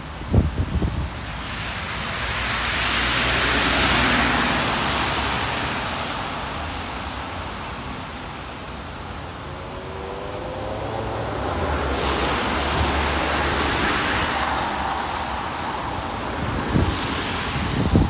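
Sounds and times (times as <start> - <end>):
vehicle passing by: 2.4 - 6.1, 9.4 - 18.0
vehicle approaching: 9.2 - 16.1.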